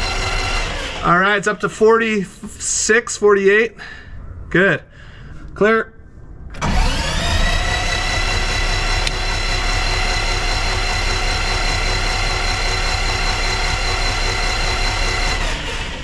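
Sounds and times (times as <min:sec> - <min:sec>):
electric starter motor whine: 0:00.0 - 0:01.4, 0:06.5 - 0:16.0.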